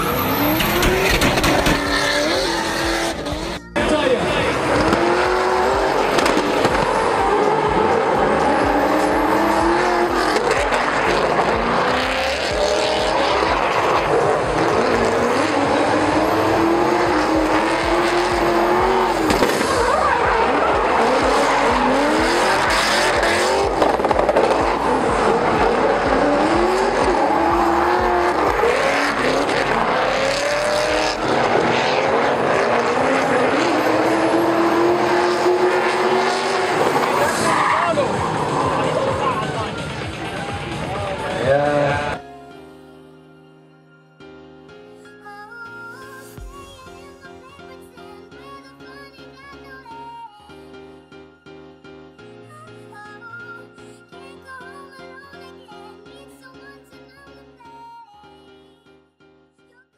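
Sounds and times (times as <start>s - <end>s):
car engines revving hard: 0.0s - 42.2s
tyres squealing and skidding: 0.0s - 42.2s.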